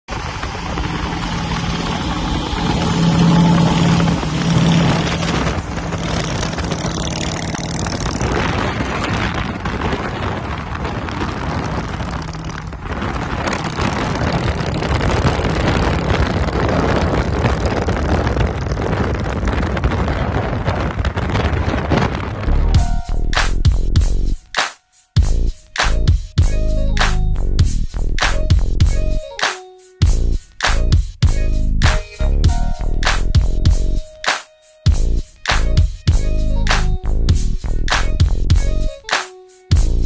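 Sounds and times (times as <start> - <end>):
motorcycle engine drone: 0.0 - 23.0
car road and wind rush: 0.0 - 23.6.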